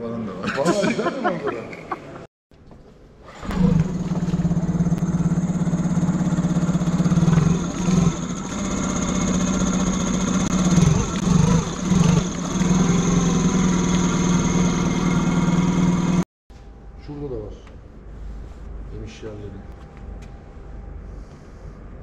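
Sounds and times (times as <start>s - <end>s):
outboard motor running: 3.4s - 16.2s.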